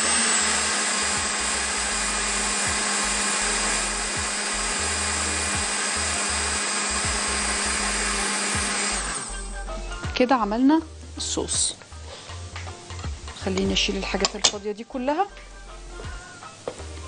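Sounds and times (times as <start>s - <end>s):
electric blender running: 0.0s - 9.6s.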